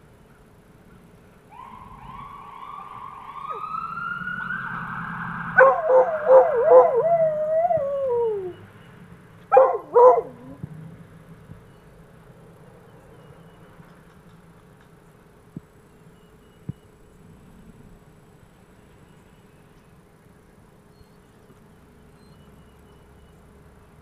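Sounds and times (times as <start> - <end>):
distant fire truck siren wailing: 1.4 - 10.8
dog howling and baying: 5.6 - 8.7, 9.5 - 10.7.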